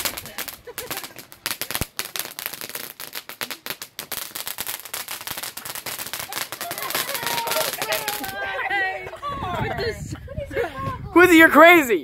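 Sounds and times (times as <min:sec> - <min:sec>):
fireworks crackling: 0:00.0 - 0:08.9.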